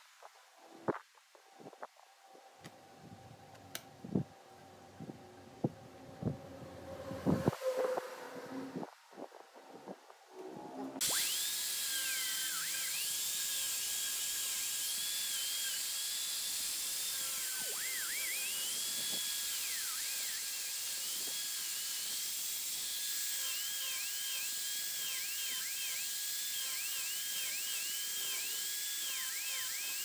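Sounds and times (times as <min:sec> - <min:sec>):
angle grinder sanding wood: 0:11.0 - 0:30.0.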